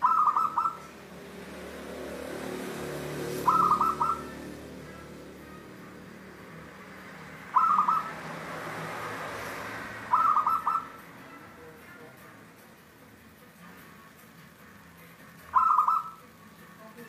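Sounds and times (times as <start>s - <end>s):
dove cooing: 0.0s - 0.9s, 2.8s - 4.6s, 7.4s - 8.4s, 10.0s - 11.0s, 15.5s - 16.2s.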